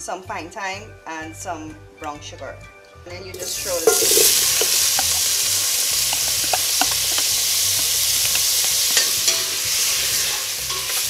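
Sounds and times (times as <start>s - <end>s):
cheese sizzling in a pot: 3.4s - 11.0s
spatula scraping metal pot: 3.4s - 11.0s.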